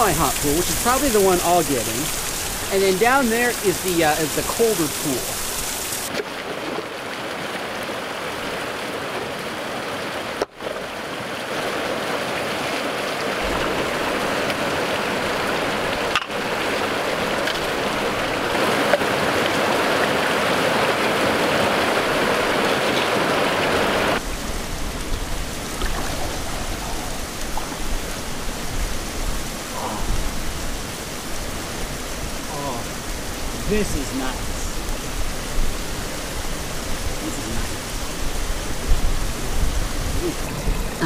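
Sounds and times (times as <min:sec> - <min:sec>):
river rushing: 0:00.0 - 0:41.0.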